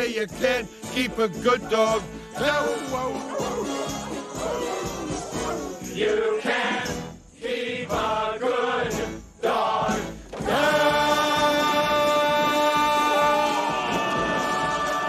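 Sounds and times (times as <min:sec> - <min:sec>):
chorus singing with instruments: 0:01.6 - 0:15.0.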